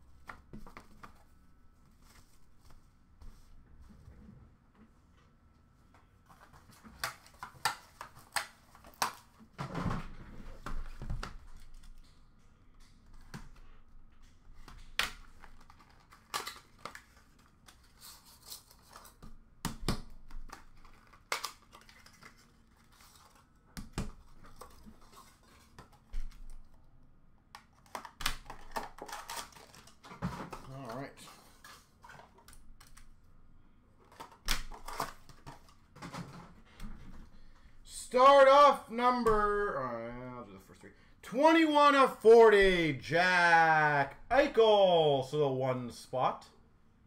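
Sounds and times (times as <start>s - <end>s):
cardboard and plastic handling: 20.4s - 26.7s, 27.7s - 33.0s, 34.0s - 37.3s.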